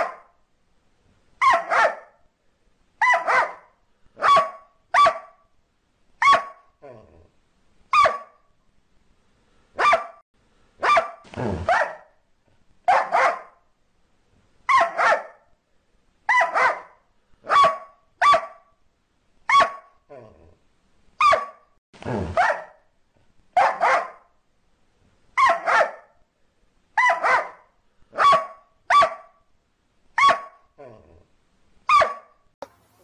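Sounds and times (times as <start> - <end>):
dog barking: 0.0 - 0.4, 1.4 - 2.2, 3.0 - 5.4, 6.2 - 6.7, 7.9 - 8.4, 9.8 - 10.2, 10.8 - 12.2, 12.9 - 13.6, 14.7 - 15.5, 16.3 - 18.7, 19.5 - 20.0, 21.2 - 22.8, 23.6 - 24.3, 25.4 - 26.2, 27.0 - 29.4, 30.2 - 30.7, 31.9 - 32.4.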